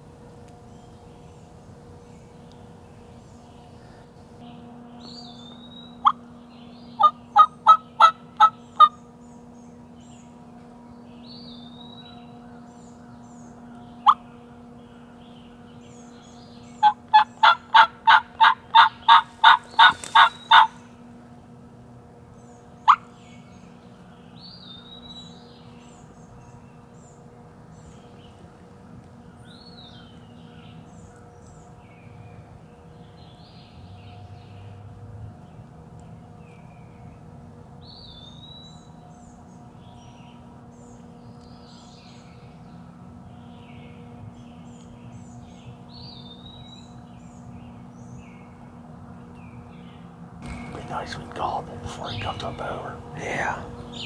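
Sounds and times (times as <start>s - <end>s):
faint songbirds chirping: 0.0s - 54.0s
turkey yelping: 7.0s - 8.9s, 16.8s - 20.8s.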